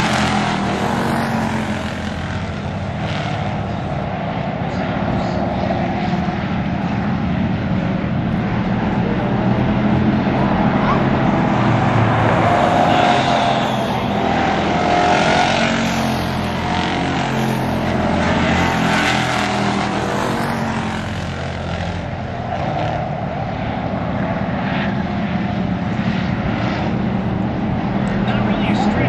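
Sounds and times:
car passing close by: 0.0 - 7.8, 8.4 - 29.0
stock car engines racing: 0.0 - 29.0.

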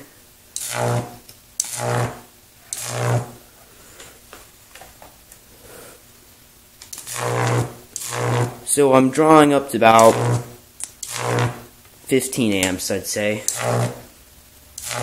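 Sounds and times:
high-voltage arc buzzing: 0.0 - 3.5, 6.7 - 15.0.

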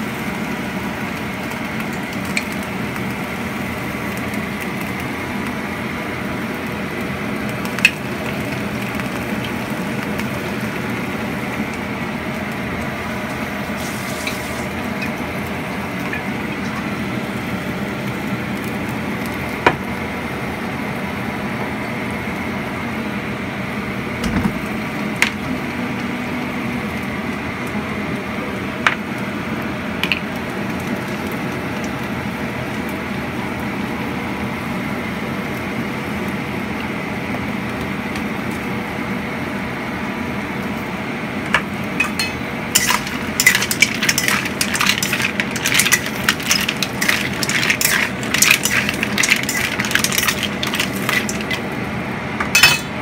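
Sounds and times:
spatula scraping wok: 13.8 - 14.8, 42.0 - 51.7.

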